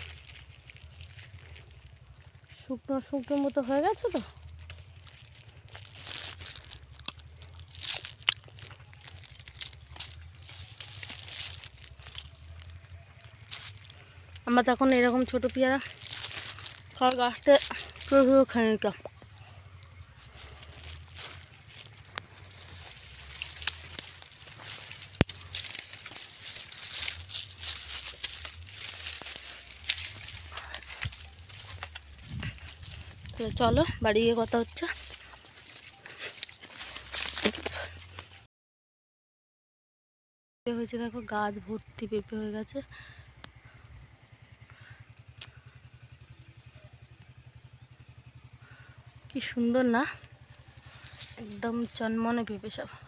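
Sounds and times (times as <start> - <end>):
twigs snapping: 0.0 - 2.6, 3.2 - 38.4, 45.2 - 46.1, 50.3 - 52.0
steady low rumble: 0.0 - 38.3, 50.1 - 53.0
leaves and twigs rustling: 0.0 - 38.5, 41.1 - 53.0.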